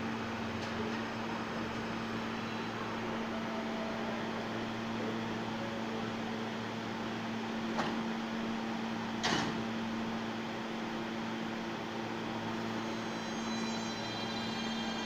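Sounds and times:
train electrical hum: 0:00.0 - 0:15.0
train doors sliding shut: 0:07.7 - 0:08.1, 0:09.2 - 0:09.7.

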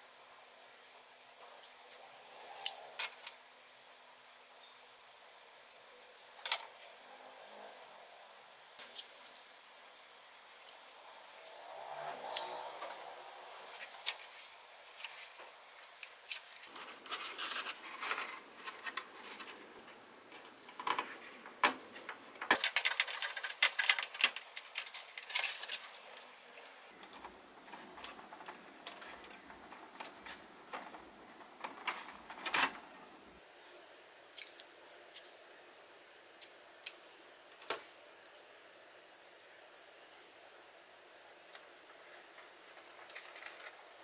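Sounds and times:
scratching and scraping on foam: 0:16.3 - 0:19.7.

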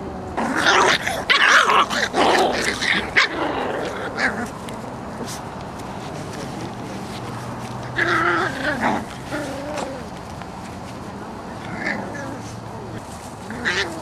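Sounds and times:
puppies barking: 0:00.4 - 0:04.5, 0:13.5 - 0:14.0.

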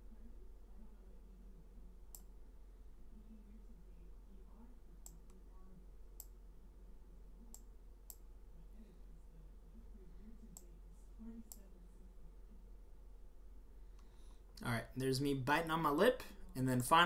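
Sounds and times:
low steady hum: 0:00.0 - 0:17.0
computer mouse clicks: 0:02.1 - 0:02.3, 0:06.2 - 0:06.4.

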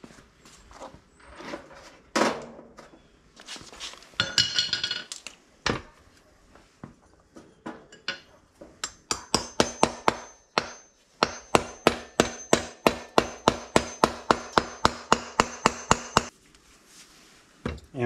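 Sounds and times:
hammer striking metal: 0:08.8 - 0:16.3.

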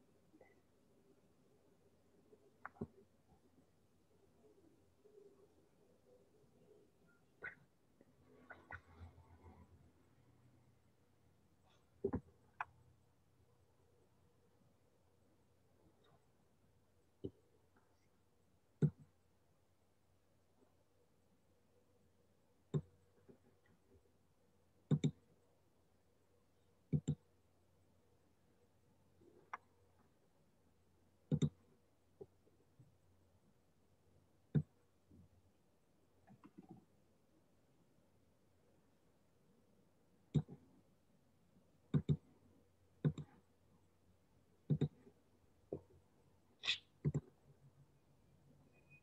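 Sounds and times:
mouse clicking: 0:24.9 - 0:25.2, 0:26.9 - 0:27.2, 0:31.3 - 0:31.6, 0:40.3 - 0:40.6, 0:41.9 - 0:42.3, 0:43.0 - 0:43.4, 0:44.7 - 0:45.1, 0:46.6 - 0:47.4.

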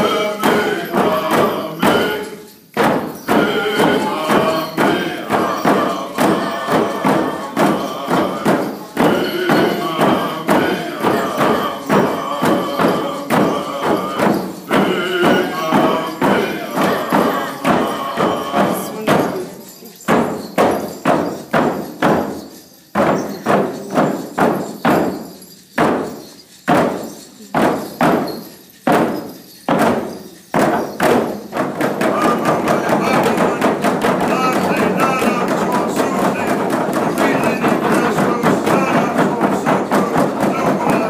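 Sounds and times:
people singing: 0:00.0 - 0:25.2, 0:29.8 - 0:41.0
frame drums beating: 0:00.0 - 0:41.0.

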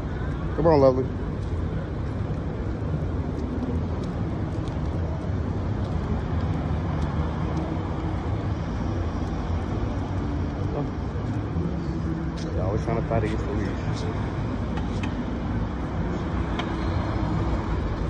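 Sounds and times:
cars passing: 0:00.0 - 0:18.0.

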